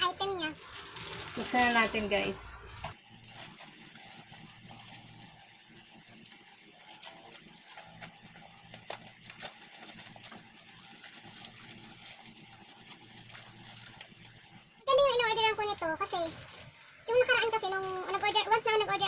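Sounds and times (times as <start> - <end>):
plastic pouch crinkling: 0.2 - 18.8
scissors cutting plastic: 3.3 - 14.4.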